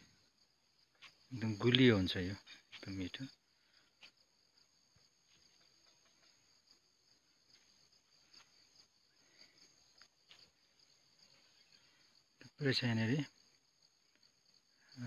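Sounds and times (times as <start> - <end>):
insects chirring: 0.0 - 15.0
light crackles and rustles: 0.8 - 11.7.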